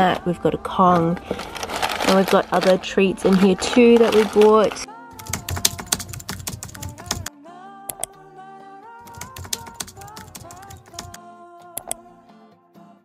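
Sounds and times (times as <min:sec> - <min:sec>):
fast clicking percussion: 0:05.2 - 0:07.3, 0:09.1 - 0:11.2.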